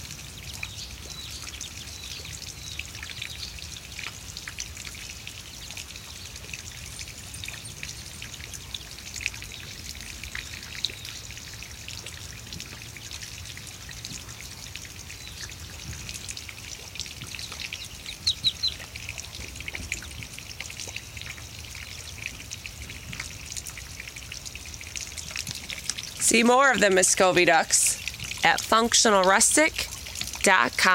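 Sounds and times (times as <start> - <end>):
ducklings peeping: 17.3 - 20.1.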